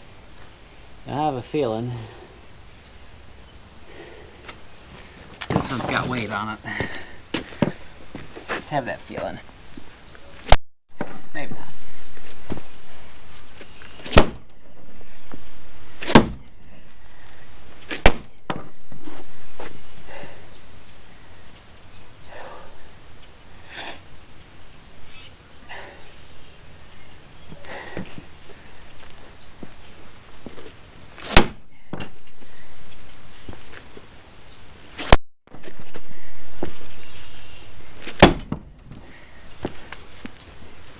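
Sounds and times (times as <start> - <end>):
boots scuffing: 4.4 - 11.2, 36.6 - 37.4, 38.0 - 40.8
sledgehammer striking wood: 14.1 - 14.4, 16.0 - 16.4, 17.9 - 18.6, 31.3 - 32.1, 38.1 - 38.9.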